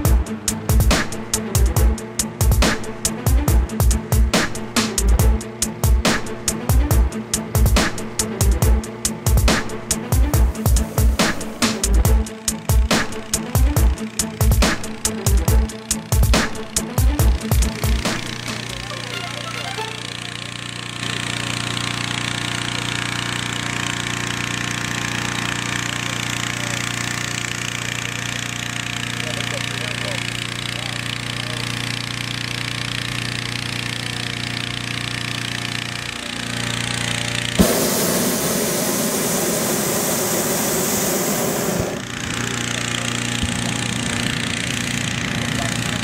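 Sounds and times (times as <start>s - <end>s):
propane burner roaring: 0.0s - 19.2s, 19.9s - 46.0s
small petrol engine running: 0.0s - 46.0s
rush of blown air: 37.6s - 42.0s.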